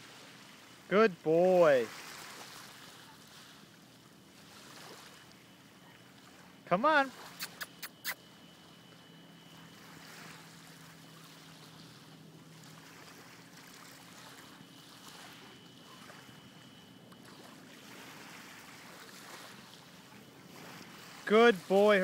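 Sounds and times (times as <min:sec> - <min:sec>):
waves lapping on pebbles: 0:00.0 - 0:08.3, 0:09.5 - 0:22.0.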